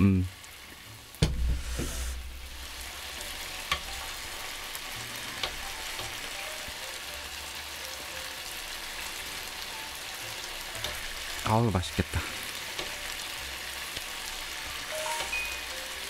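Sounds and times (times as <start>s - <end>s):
chicken sizzling on a griddle: 0.0s - 16.0s.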